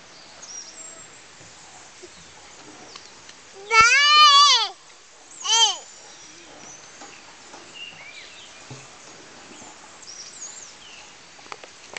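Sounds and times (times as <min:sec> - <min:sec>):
child squealing: 0:03.6 - 0:04.8, 0:05.4 - 0:05.8.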